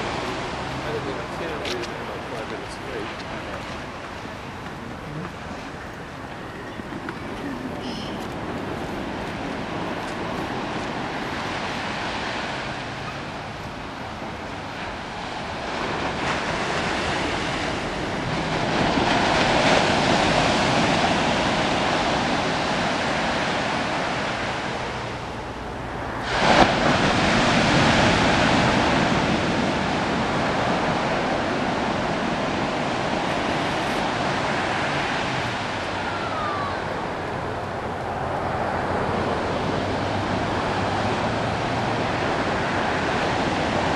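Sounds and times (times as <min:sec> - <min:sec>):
ocean surf washing onto beach: 0:00.0 - 0:43.9
wave breaking: 0:00.0 - 0:43.9.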